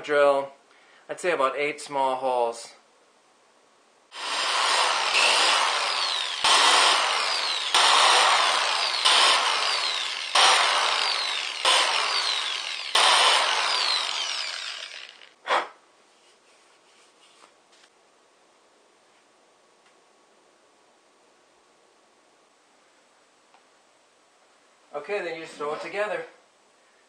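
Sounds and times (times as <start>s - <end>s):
electric drill boring into rubber: 4.1s - 15.4s.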